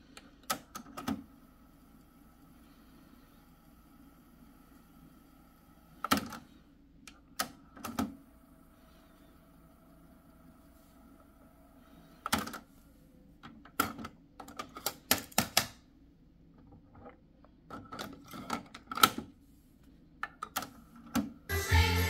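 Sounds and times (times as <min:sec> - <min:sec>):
cassette deck motor whine: 0:21.5 - 0:22.0.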